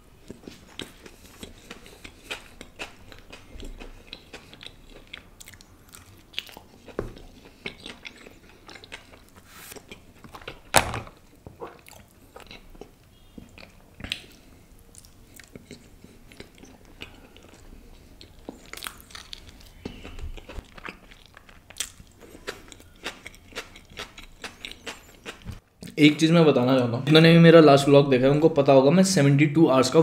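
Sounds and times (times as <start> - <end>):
person chewing food: 0.2 - 25.9.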